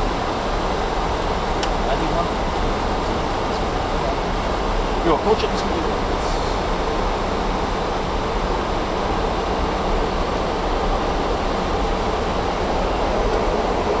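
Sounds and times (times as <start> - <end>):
airflow and engines rushing: 0.0 - 14.0.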